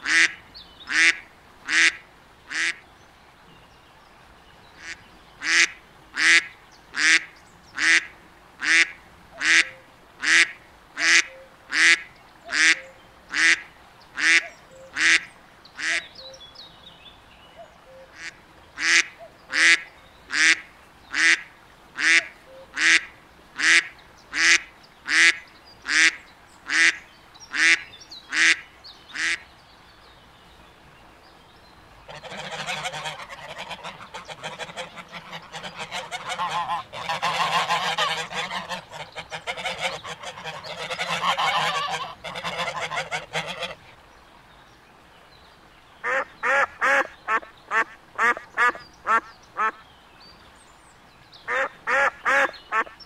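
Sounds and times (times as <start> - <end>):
duck quacking: 0.0 - 2.8, 4.8 - 13.6, 14.2 - 16.0, 18.1 - 28.6, 29.2 - 29.4, 32.1 - 43.8, 46.0 - 49.8, 51.5 - 53.0.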